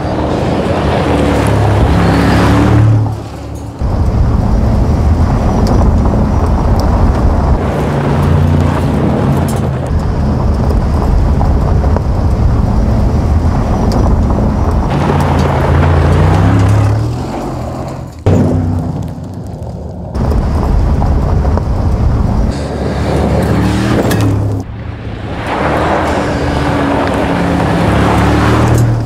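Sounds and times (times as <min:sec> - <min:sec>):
car engine under load: 0:00.0 - 0:29.0
tyres rushing over gravel: 0:13.4 - 0:22.2.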